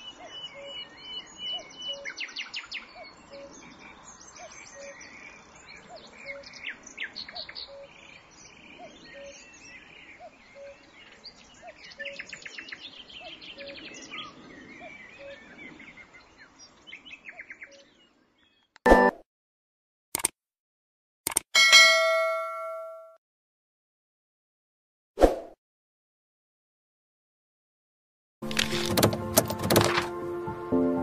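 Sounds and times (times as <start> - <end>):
birds chirping: 0.0 - 18.8.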